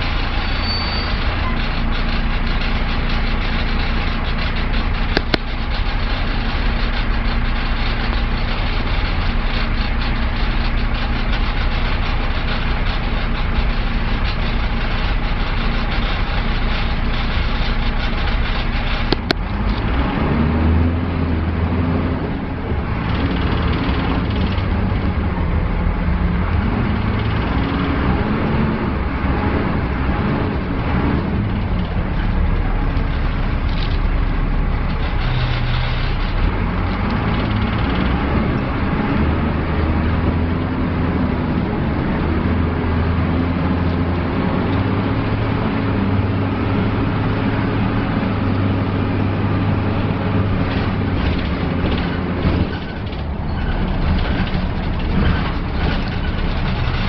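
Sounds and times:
bus diesel engine: 0.0 - 57.0
road drone: 0.0 - 57.0
sharp click: 5.1 - 5.8, 18.9 - 19.9.

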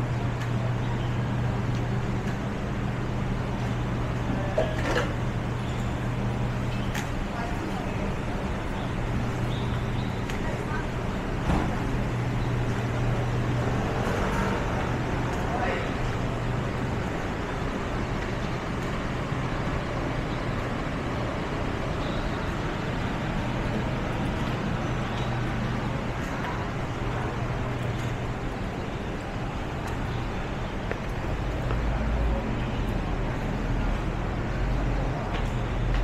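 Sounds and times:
city traffic hum: 0.0 - 36.0.

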